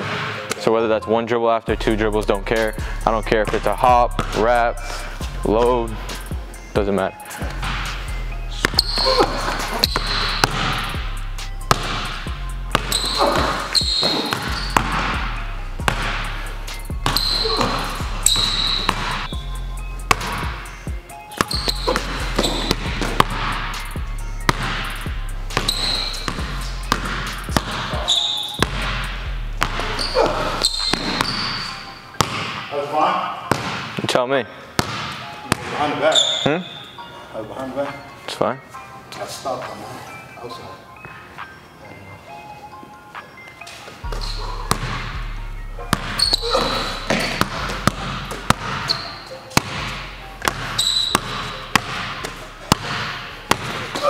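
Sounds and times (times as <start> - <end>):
sneaker squeaks: 8.5 - 11.0, 11.7 - 28.9, 29.6 - 32.6, 34.8 - 38.2, 42.4 - 45.2, 45.8 - 54.0
basketball dribbled on wooden floor: 8.6 - 10.8, 12.7 - 15.1, 15.8 - 16.2, 20.1 - 20.6, 21.4 - 23.5, 24.5 - 24.8, 25.6 - 27.9, 28.6 - 29.0, 30.6 - 31.6, 44.1 - 45.1, 45.9 - 54.0.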